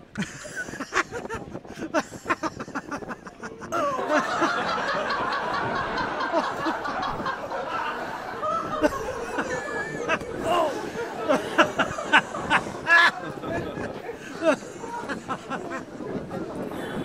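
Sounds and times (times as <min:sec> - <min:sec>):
crowd laughing: 0:00.0 - 0:17.0
person snickering: 0:00.2 - 0:04.4, 0:08.8 - 0:13.2.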